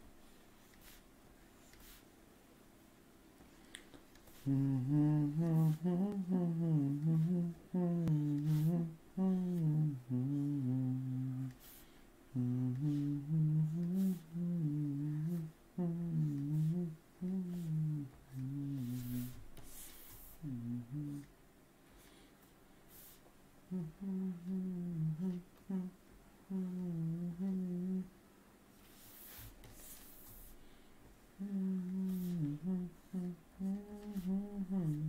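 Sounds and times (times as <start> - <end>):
man humming: 4.4 - 11.7, 12.3 - 19.7, 20.3 - 21.3, 23.7 - 28.1, 31.4 - 35.0.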